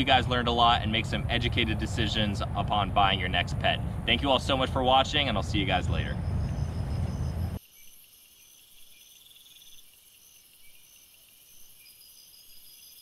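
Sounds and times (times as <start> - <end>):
high-pitched insect chorus: 4.2 - 13.0.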